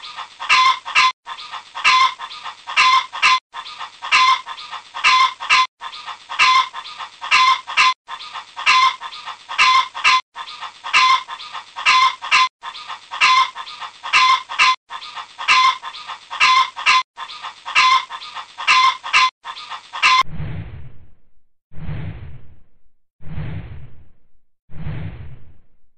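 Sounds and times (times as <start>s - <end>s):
chickens clucking: 0.0s - 20.2s.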